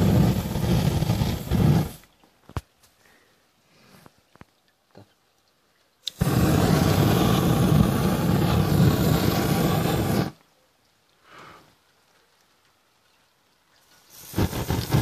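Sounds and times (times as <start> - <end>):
flames rushing: 0.0 - 2.0, 6.1 - 10.4, 14.1 - 15.0.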